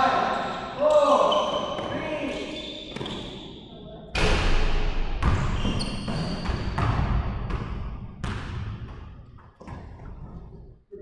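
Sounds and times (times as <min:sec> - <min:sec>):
basketball bouncing on gym floor: 0:04.2 - 0:10.5.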